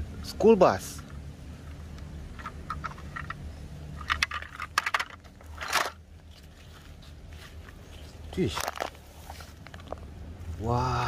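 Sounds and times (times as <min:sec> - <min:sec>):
toy vehicles clattering in plastic basket: 0:04.0 - 0:06.0, 0:08.5 - 0:09.0.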